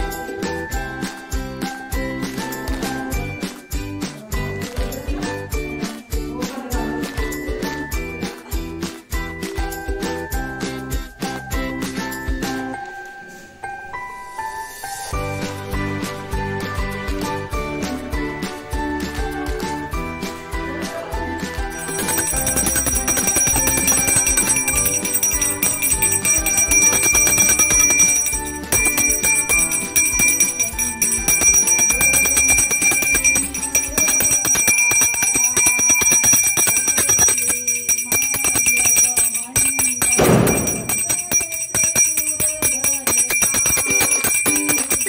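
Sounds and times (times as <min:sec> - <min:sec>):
music: 0:00.0 - 0:45.0
bell ringing rapidly: 0:21.7 - 0:45.0.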